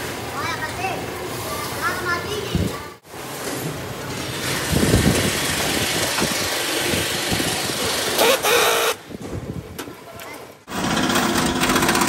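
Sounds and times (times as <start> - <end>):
loud mechanical noise: 3.9 - 9.0, 10.7 - 12.0.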